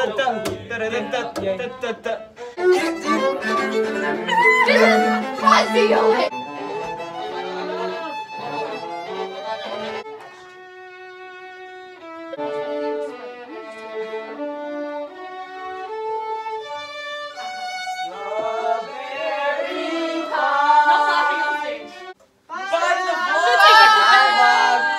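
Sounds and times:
voices: 0:00.0 - 0:10.0, 0:18.1 - 0:24.9
violins playing: 0:00.0 - 0:22.2.

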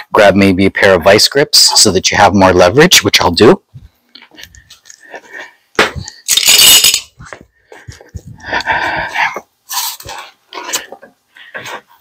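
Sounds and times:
metal hand tools clinking: 0:06.2 - 0:07.2.

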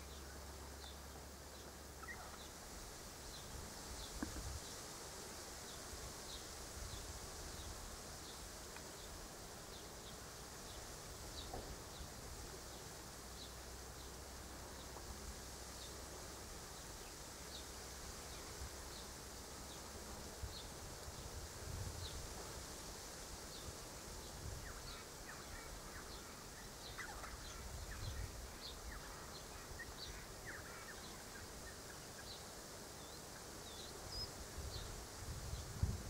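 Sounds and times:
insect hiss: 0:00.0 - 0:36.0.

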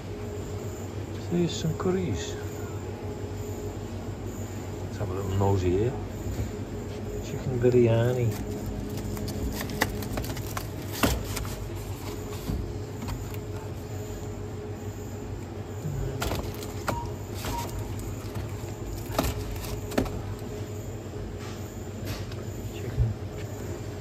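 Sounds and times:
refrigeration hum: 0:00.0 - 0:24.0
cardboard boxes clicking and tapping: 0:08.9 - 0:13.5.

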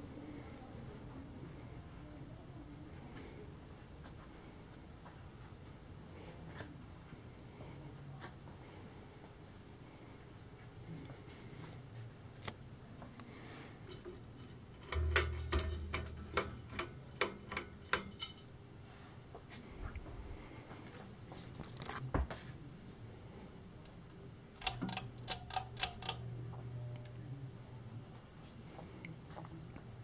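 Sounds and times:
ceiling fans running: 0:00.0 - 0:30.0
quick irregular clicks: 0:23.9 - 0:26.3.

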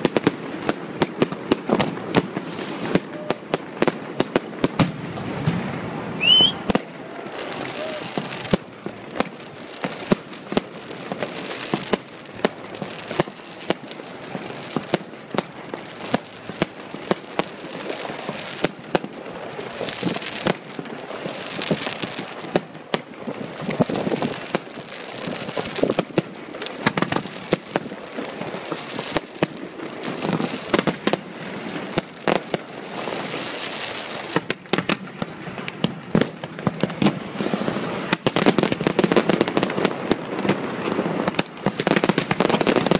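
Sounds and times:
crackling hiss: 0:00.0 - 0:42.9
fireworks shells bursting: 0:06.2 - 0:10.3.

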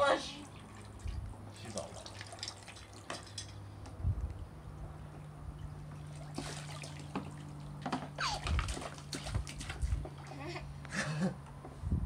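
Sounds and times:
water trickling from toy scoop: 0:01.6 - 0:03.5.

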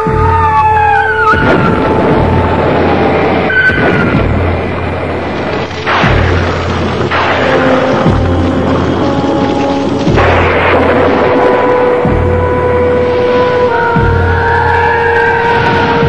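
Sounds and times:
dramatic film music: 0:00.0 - 0:16.0
heavy rumble: 0:00.0 - 0:16.0
explosion booms: 0:01.3 - 0:12.8.

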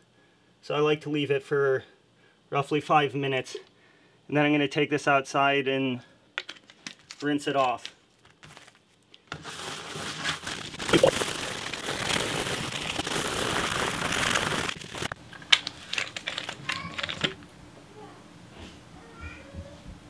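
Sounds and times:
scrub brush scrubbing glass: 0:09.4 - 0:15.1.

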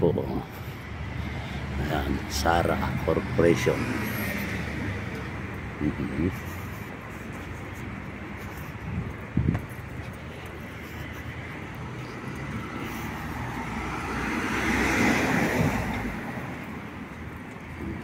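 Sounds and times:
street traffic hum: 0:00.0 - 0:18.0
car driving past: 0:12.2 - 0:16.8.

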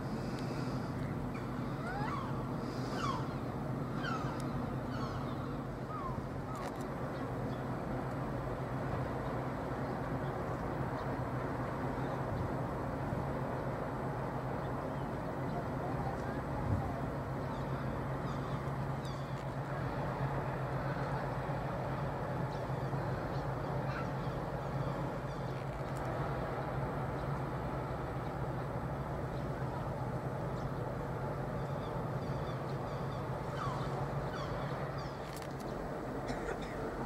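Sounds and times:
ship engine low hum: 0:00.0 - 0:37.0
bird calls: 0:00.2 - 0:07.7, 0:17.4 - 0:19.6, 0:22.4 - 0:26.0, 0:31.6 - 0:37.0.

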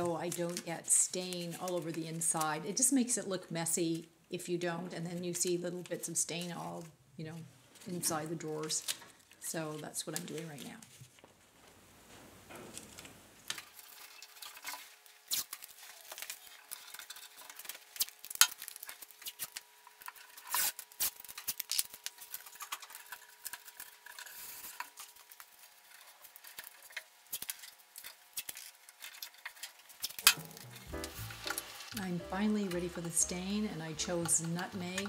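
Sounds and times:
tape tearing and crackling: 0:00.0 - 0:02.6, 0:08.6 - 0:11.3, 0:12.6 - 0:35.0.

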